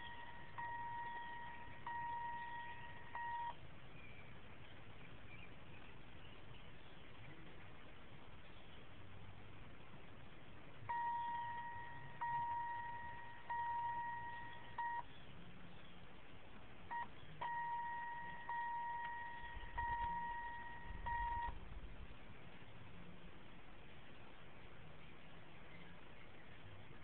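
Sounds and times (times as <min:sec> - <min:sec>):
steady electronic beep: 0:00.0 - 0:03.6, 0:10.9 - 0:15.1, 0:16.9 - 0:21.6
small electrical clicks: 0:16.9 - 0:22.0.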